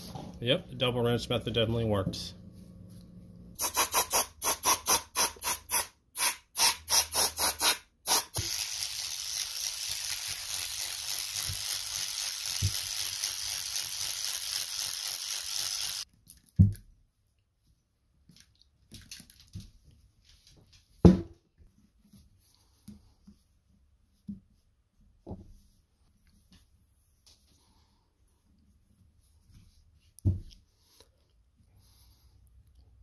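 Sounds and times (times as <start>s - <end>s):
aerosol spray hissing: 3.6s - 16.0s.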